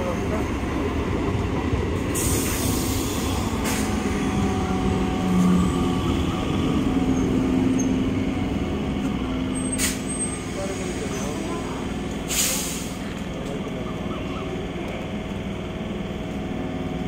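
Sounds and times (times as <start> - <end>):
train rumbling and humming: 0.0 - 17.0
short hiss: 12.3 - 13.0.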